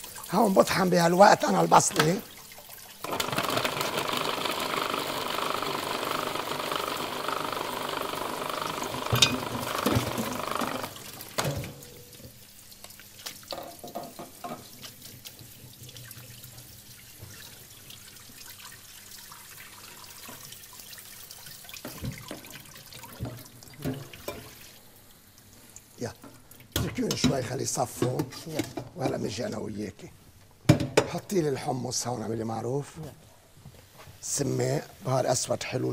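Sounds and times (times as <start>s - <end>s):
water at a sink: 0.0s - 30.0s
food processor motor chopping: 3.0s - 11.0s
kitchen utensils clattering: 9.1s - 10.8s.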